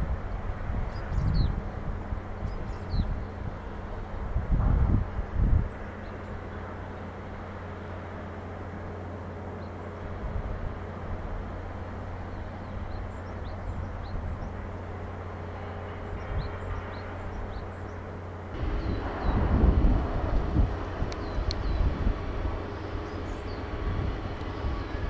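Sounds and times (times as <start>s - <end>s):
wind rumble on microphone: 0.0s - 8.1s, 10.0s - 25.0s
distant machinery and traffic: 0.0s - 25.0s
low hum: 0.0s - 25.0s
small birds chirping: 21.1s - 22.0s, 22.6s - 25.0s.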